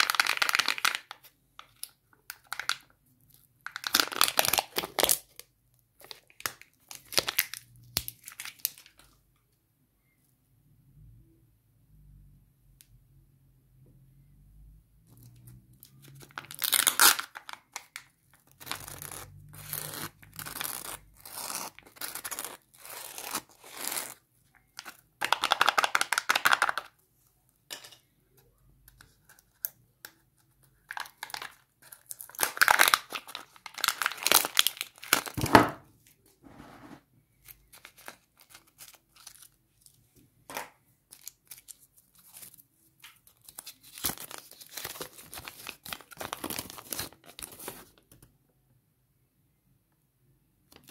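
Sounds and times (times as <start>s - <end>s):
plastic wrapper crinkling and tearing: 0.0s - 9.2s, 15.1s - 27.0s, 29.0s - 35.5s, 37.3s - 40.0s, 41.0s - 48.2s
packaging being peeled open: 3.7s - 5.4s, 15.8s - 26.8s, 30.8s - 35.4s, 37.4s - 40.0s, 41.1s - 48.0s.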